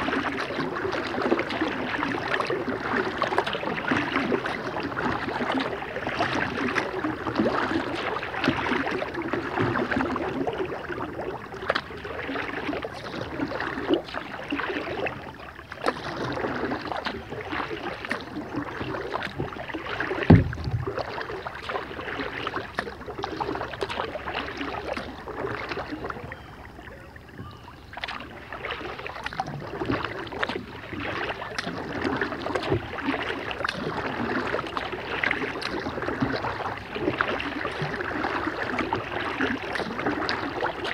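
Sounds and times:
paddle splashing in water: 0:00.0 - 0:40.9
water dripping off paddle: 0:00.0 - 0:40.9
sharp thump: 0:20.3 - 0:20.8.

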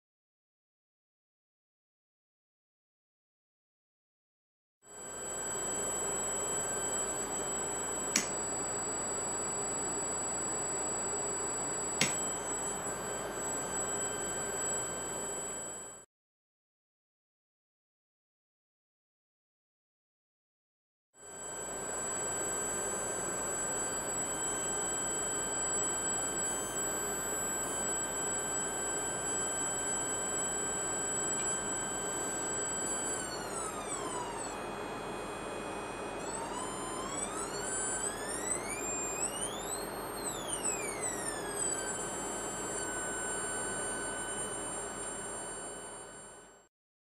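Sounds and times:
high electrical whine: 0:05.2 - 0:16.0, 0:21.4 - 0:46.6.

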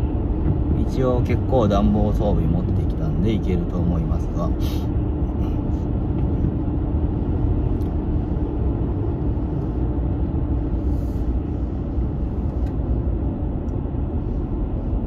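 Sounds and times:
car engine rumble: 0:00.0 - 0:15.0.

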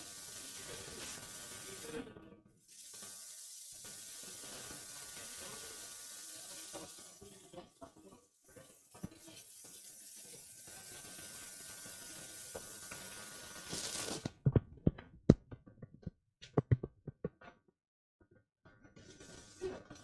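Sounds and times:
sharp knocks and clicks: 0:14.5 - 0:17.6.

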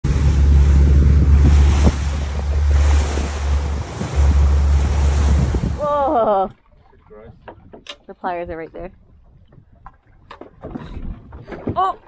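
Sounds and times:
sea water washing: 0:00.0 - 0:07.1
wind buffeting microphone: 0:00.0 - 0:12.0.

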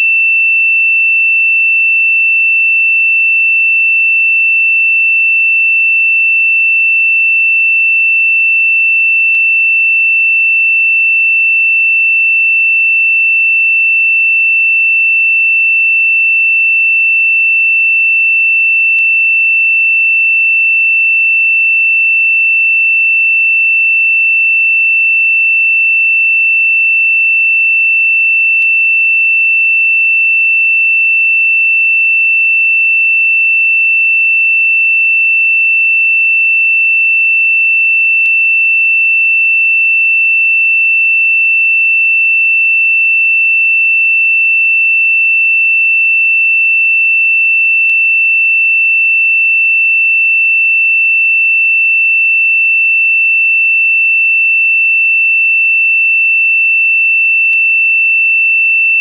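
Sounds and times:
high-pitched sine tone: 0:00.0 - 0:00.2.

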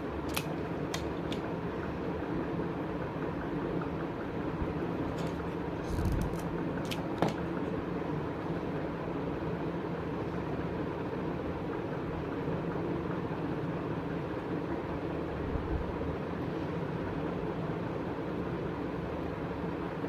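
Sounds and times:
background hum: 0:00.0 - 0:11.0.

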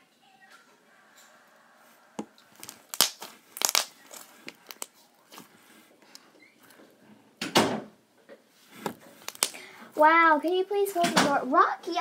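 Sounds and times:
slime clicking and popping: 0:02.6 - 0:04.9, 0:09.2 - 0:09.7.

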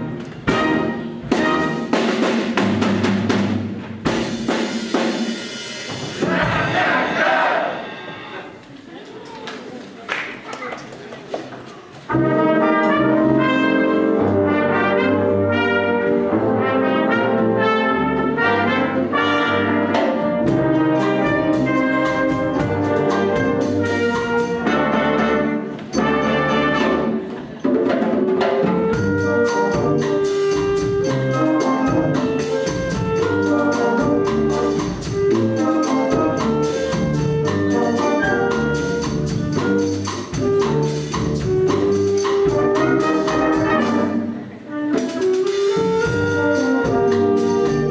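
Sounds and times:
wind band playing: 0:00.0 - 0:08.7, 0:12.1 - 0:47.9
percussion steady beat: 0:00.0 - 0:09.0, 0:19.8 - 0:44.2, 0:45.0 - 0:47.9.

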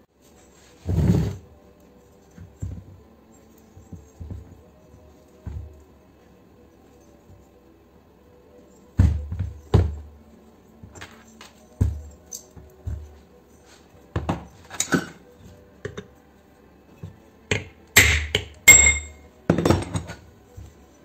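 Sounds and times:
hammer striking metal: 0:17.5 - 0:19.9
metal housing set down on workbench: 0:17.5 - 0:20.2.

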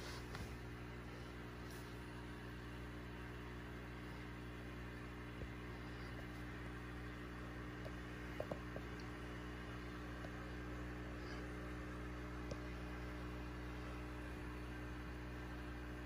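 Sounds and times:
aquarium air pump humming: 0:00.0 - 0:16.0.

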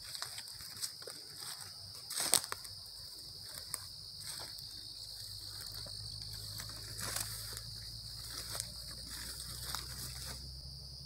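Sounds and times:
crickets and insects droning: 0:00.0 - 0:11.0
faint rustles and knocks: 0:03.4 - 0:10.5.

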